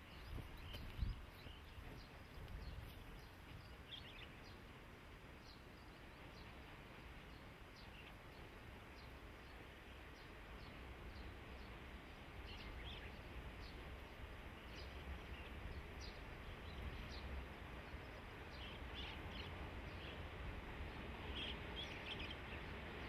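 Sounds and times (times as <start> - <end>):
bird chirps: 21.3 - 22.7.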